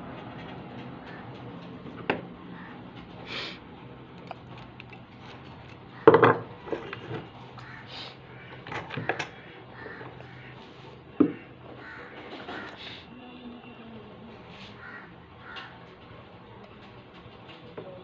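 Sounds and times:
metal tools knocking on workbench: 6.0 - 7.2.

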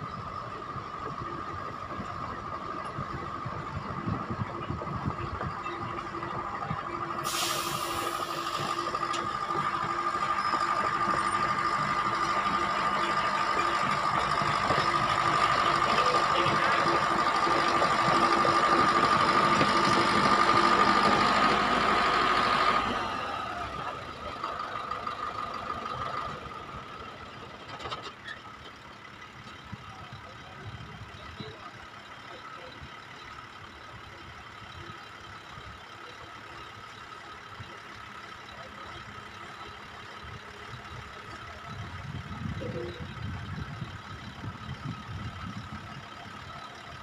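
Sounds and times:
hydraulic high whine: 0.0 - 24.2
diesel engine running: 0.0 - 47.0.

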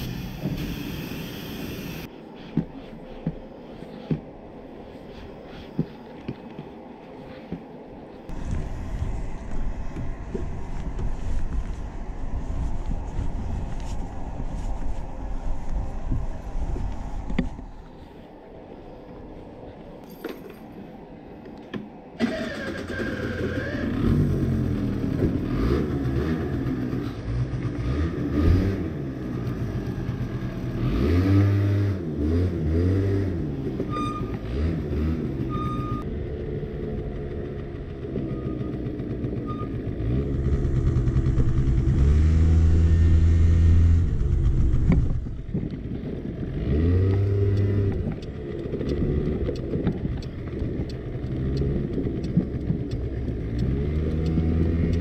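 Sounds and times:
scooter engine revving: 36.9 - 44.9.

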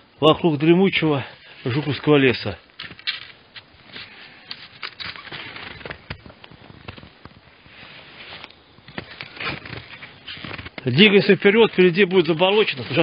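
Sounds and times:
skis crunching through snow: 2.9 - 6.2, 7.6 - 13.0.

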